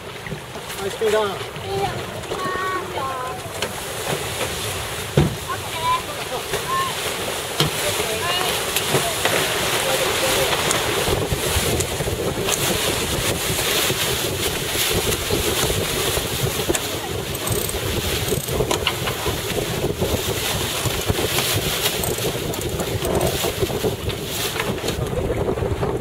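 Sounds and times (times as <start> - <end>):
water rushing past hull: 0.0 - 26.0
wind buffeting microphone: 10.4 - 26.0.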